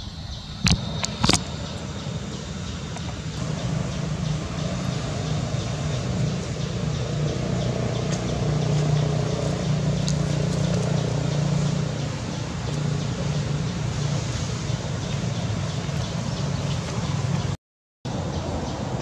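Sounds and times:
motor vehicle engine hum: 0.4 - 19.0.

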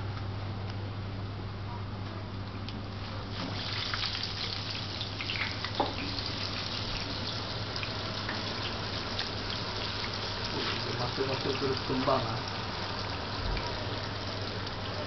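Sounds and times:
potato frying in hot oil: 3.1 - 15.0.

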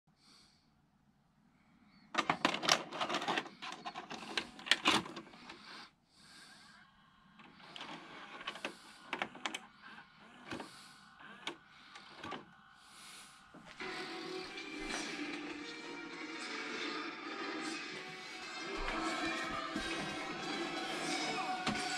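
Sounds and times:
tape playback audio: 2.0 - 5.8, 6.7 - 21.9
cassette clicks and clunks: 2.2 - 5.4.

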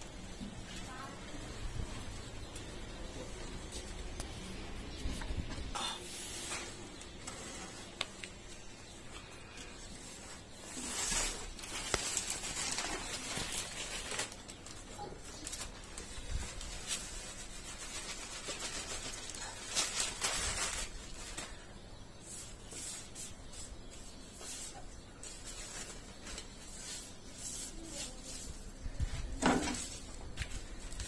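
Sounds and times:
newspaper rustling: 9.6 - 21.6.

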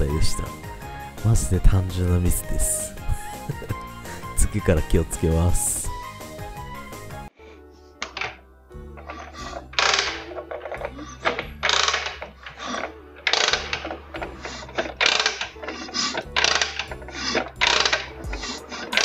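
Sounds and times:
metal ratchet clicking: 9.0 - 19.0.

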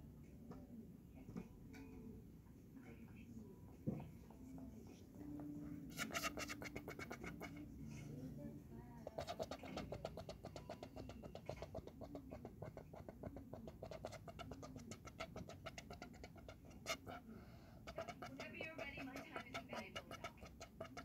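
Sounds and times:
rapid scratchy clicking: 17.9 - 21.0.

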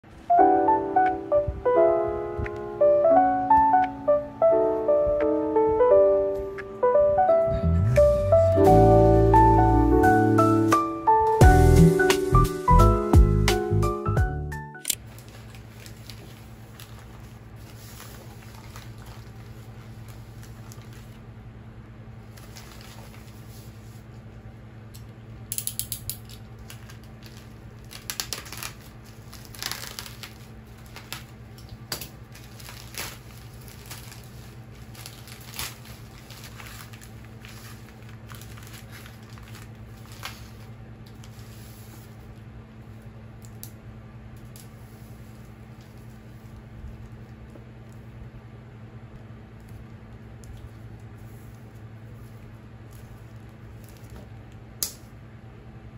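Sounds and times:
low hum: 1.2 - 10.4
plastic mailer crinkling: 14.8 - 21.2, 22.2 - 23.8, 26.2 - 42.0.

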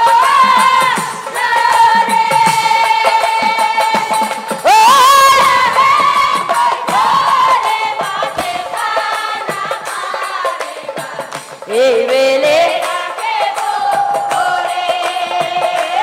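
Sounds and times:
percussion strikes: 0.0 - 16.0.

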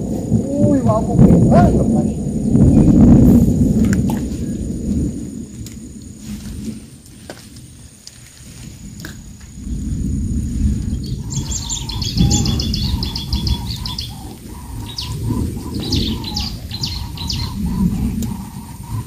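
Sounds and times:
low rushing noise: 0.0 - 7.8, 8.4 - 19.0
songbird chirping: 8.9 - 19.0.

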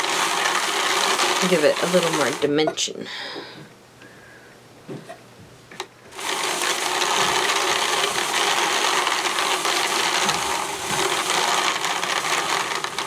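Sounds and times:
drum carder whirring: 0.0 - 3.7, 5.8 - 13.0.

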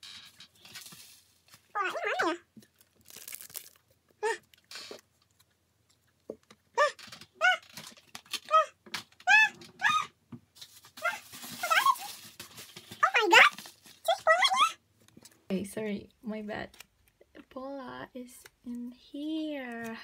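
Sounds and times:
rustling: 0.0 - 8.4, 10.5 - 14.4.

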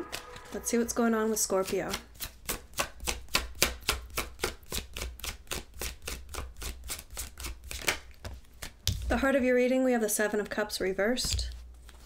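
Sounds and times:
cards being shuffled: 1.3 - 9.1, 11.3 - 12.0.

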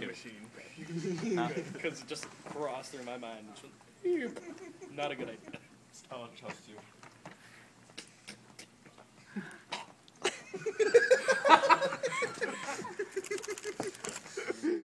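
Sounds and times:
man laughing hard: 10.2 - 14.8.

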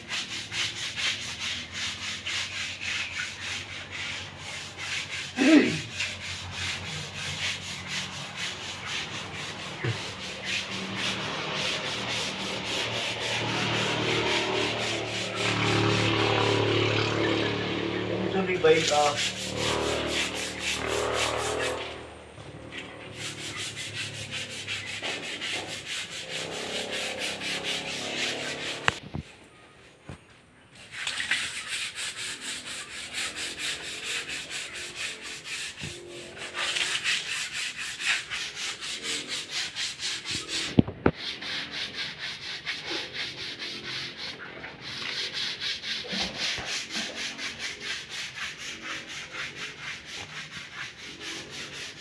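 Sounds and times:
brush scrubbing wet concrete: 0.0 - 52.0.

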